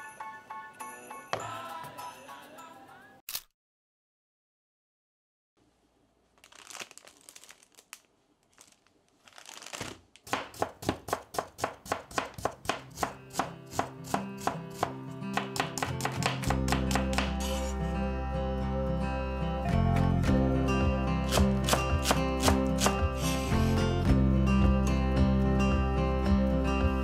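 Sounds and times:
background music: 0:00.0 - 0:03.2, 0:12.9 - 0:27.0
knife chopping on plastic board: 0:10.3 - 0:17.4, 0:21.3 - 0:23.0.

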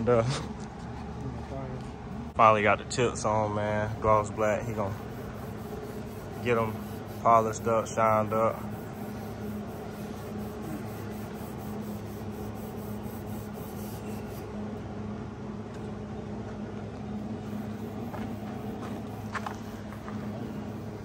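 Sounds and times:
machinery hum: 0:00.0 - 0:21.0
cloth rag rubbing metal: 0:04.2 - 0:14.5.

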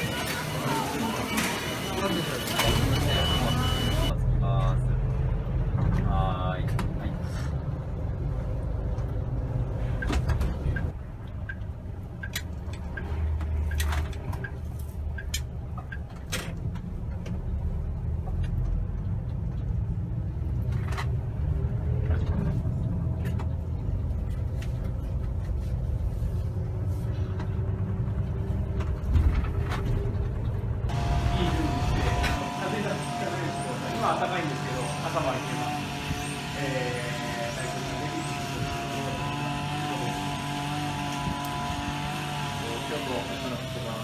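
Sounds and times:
vehicle rumble inside cabin: 0:02.8 - 0:32.4.

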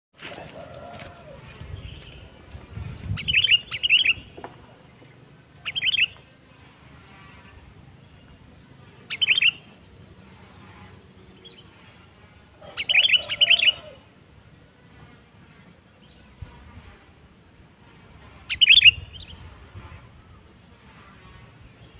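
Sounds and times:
bird chirping: 0:03.0 - 0:04.5, 0:05.6 - 0:06.2, 0:08.0 - 0:11.7, 0:12.6 - 0:14.0, 0:18.5 - 0:19.4.

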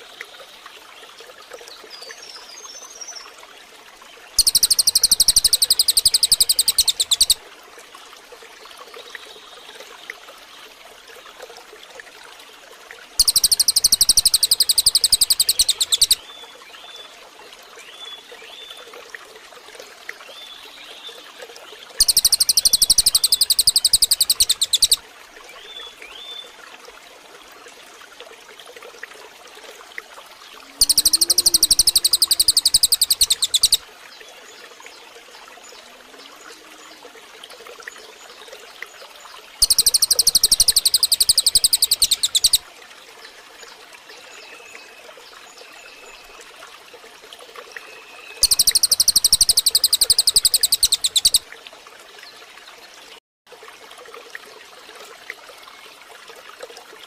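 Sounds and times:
songbird trilling: 0:04.4 - 0:07.4, 0:13.2 - 0:16.2, 0:22.0 - 0:25.0, 0:30.8 - 0:33.8, 0:39.6 - 0:42.6, 0:48.4 - 0:51.4.

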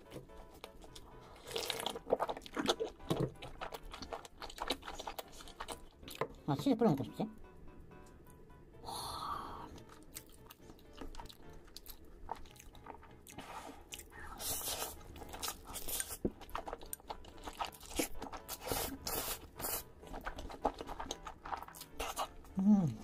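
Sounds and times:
chewing with wet smacking: 0:00.5 - 0:06.4, 0:09.8 - 0:14.2, 0:15.2 - 0:18.8, 0:19.4 - 0:22.6.

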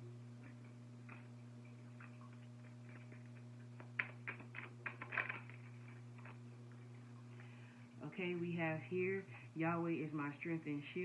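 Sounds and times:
low electrical hum: 0:00.0 - 0:11.0
cards clicking and tapping: 0:02.9 - 0:06.4.

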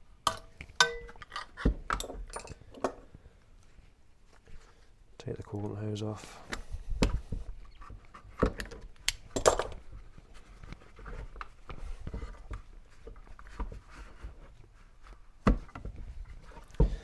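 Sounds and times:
clicks and knocks of handling parts: 0:00.2 - 0:03.2, 0:06.5 - 0:14.4.

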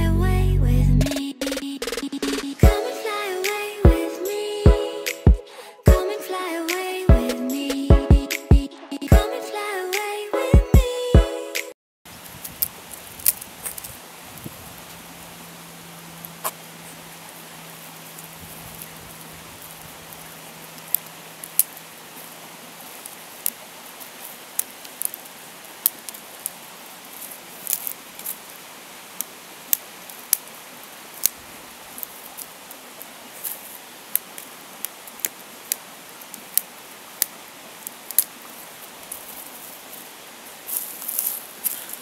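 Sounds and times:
steady hiss: 0:01.5 - 0:05.7, 0:12.1 - 0:42.0
dry twigs snapping: 0:19.7 - 0:21.9, 0:24.2 - 0:28.5, 0:31.1 - 0:32.6, 0:33.4 - 0:38.4, 0:40.7 - 0:42.0.

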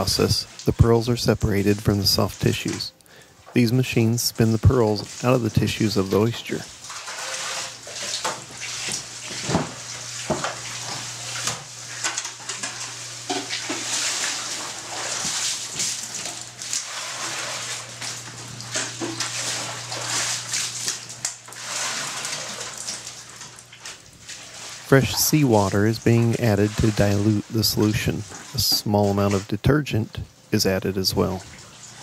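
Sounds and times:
water splashing and sloshing: 0:00.0 - 0:30.5, 0:31.2 - 0:32.0
steady low hum: 0:07.9 - 0:31.5.

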